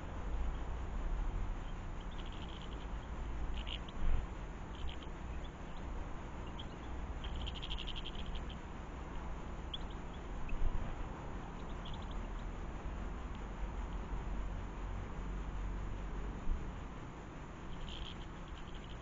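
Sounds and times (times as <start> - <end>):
small birds chirping: 0.0 - 14.6, 17.2 - 19.0
steady low rumble: 0.0 - 19.0
bird twittering run: 1.6 - 8.6, 9.6 - 10.8, 11.5 - 12.6, 17.7 - 19.0.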